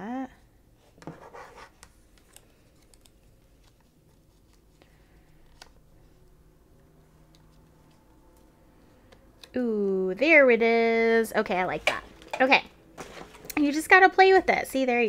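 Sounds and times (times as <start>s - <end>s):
paper rustling: 1.0s - 6.2s, 12.9s - 14.4s.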